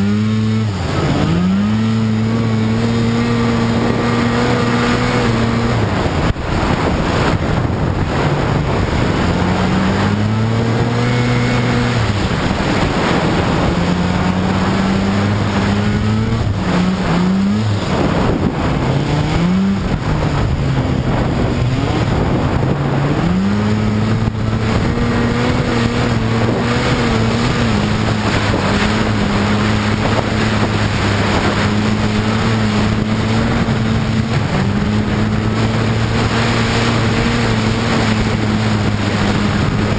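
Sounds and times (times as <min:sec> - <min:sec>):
snowmobile engine running: 0:00.0 - 0:39.9
wind buffeting microphone: 0:00.0 - 0:39.9.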